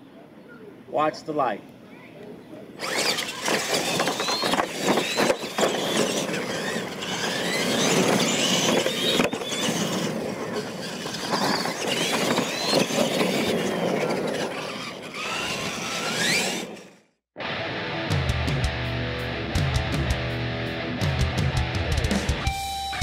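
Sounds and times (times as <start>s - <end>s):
toy truck motors whining: 2.8s - 17.1s.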